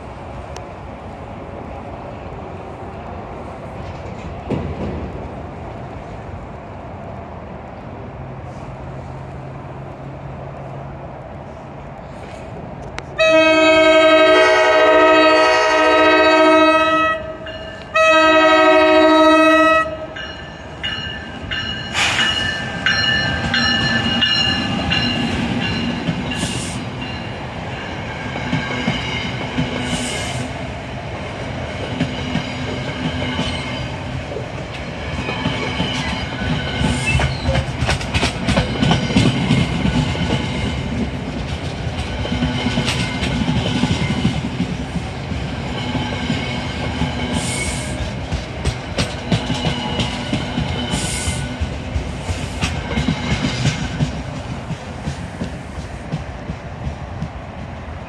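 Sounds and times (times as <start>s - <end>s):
train wheels rumbling: 0.0s - 58.0s
train horn chord: 13.2s - 20.2s
wheels clacking over rail joints: 31.1s - 58.0s.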